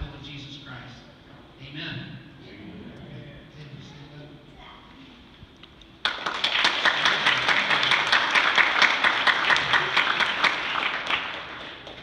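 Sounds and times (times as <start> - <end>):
crowd applauding: 6.0 - 12.0.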